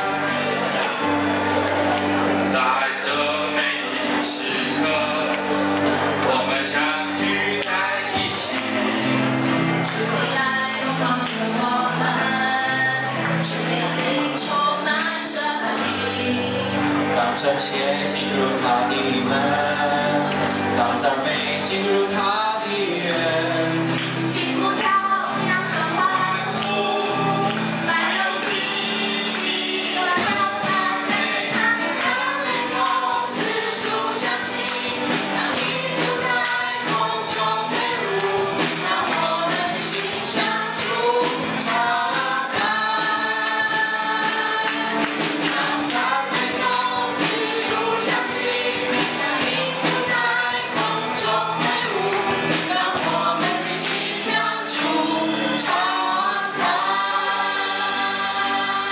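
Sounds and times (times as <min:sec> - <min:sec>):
acoustic guitar: 0:00.0 - 0:58.9
drum kit: 0:00.0 - 0:58.9
keyboard: 0:00.0 - 0:58.9
people singing: 0:00.0 - 0:58.9.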